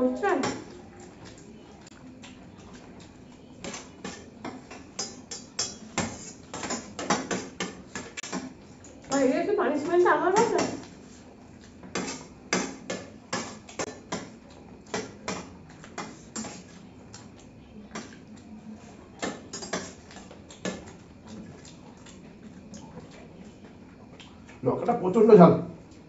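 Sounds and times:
spoons clinking on steel plates: 3.6 - 8.5, 19.2 - 20.9.

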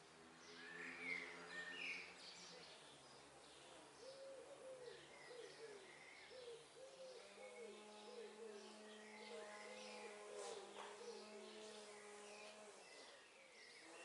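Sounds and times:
pigeon cooing: 4.0 - 8.7.

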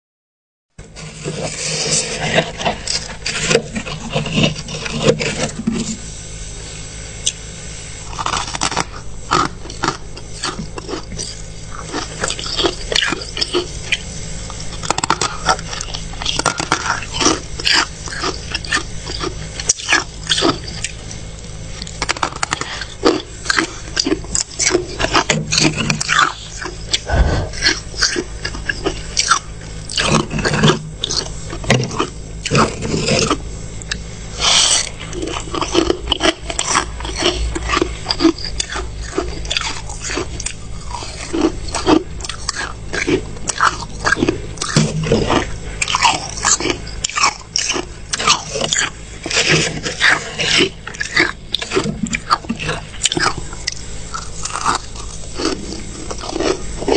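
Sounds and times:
frost being chewed crunching: 1.0 - 6.0, 7.2 - 56.9.

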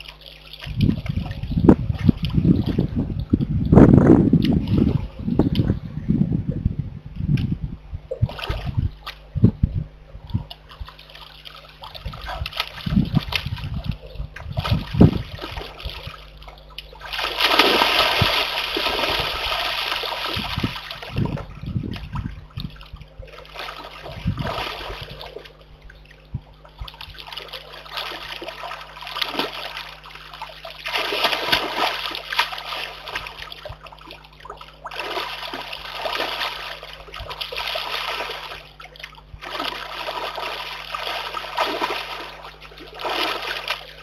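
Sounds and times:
bear cub splashing in pond: 10.3 - 44.0.

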